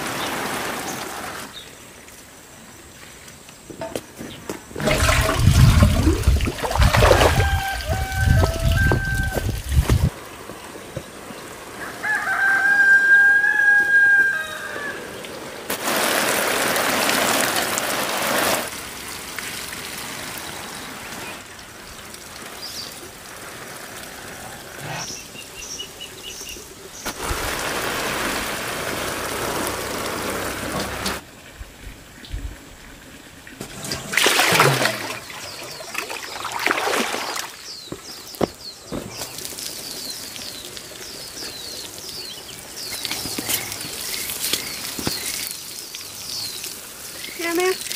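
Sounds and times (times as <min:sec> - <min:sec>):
water sprinkling from watering can: 0:00.0 - 0:02.4, 0:04.8 - 0:14.4, 0:15.1 - 0:31.3, 0:33.5 - 0:47.9
small birds chirping: 0:24.7 - 0:27.2, 0:37.5 - 0:47.9.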